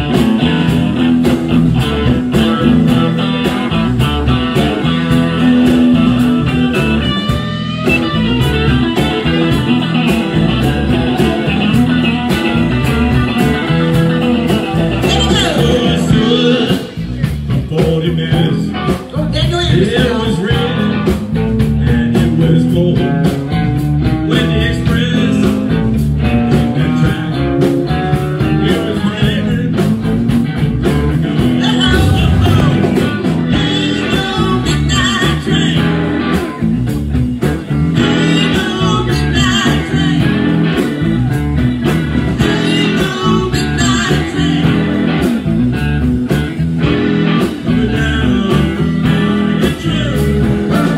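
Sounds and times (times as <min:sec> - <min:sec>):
drum kit beat: 0:00.0 - 0:23.9, 0:29.2 - 0:38.8
bass guitar: 0:00.0 - 0:50.9
electric guitars: 0:00.0 - 0:50.9.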